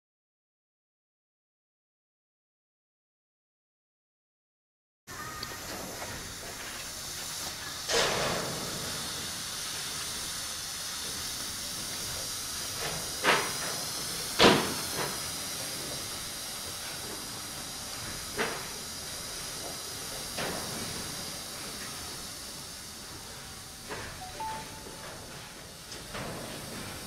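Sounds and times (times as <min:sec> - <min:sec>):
smoke can hissing: 0:05.5 - 0:20.0.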